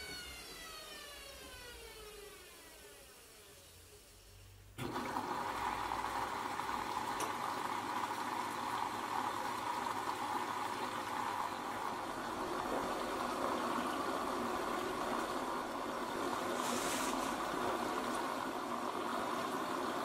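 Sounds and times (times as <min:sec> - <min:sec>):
water rushing in washing machine: 0:04.8 - 0:20.0.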